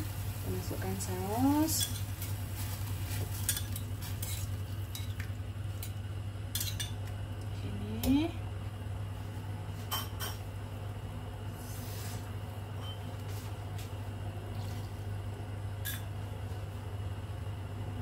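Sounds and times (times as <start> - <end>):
gas burner hum: 0.0 - 18.0.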